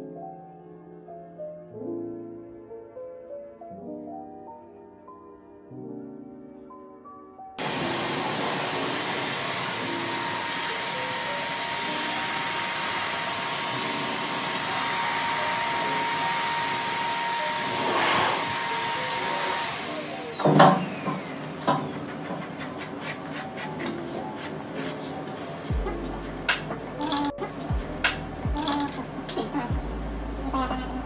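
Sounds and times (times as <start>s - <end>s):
blow dryer whining: 7.6s - 28.8s.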